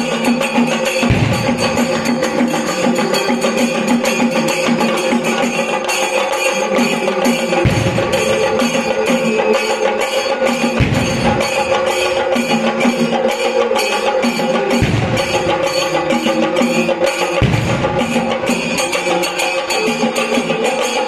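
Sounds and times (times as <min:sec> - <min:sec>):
music with steady percussion beat: 0:00.0 - 0:21.0
deep drum booms: 0:01.1 - 0:02.4, 0:17.4 - 0:18.2.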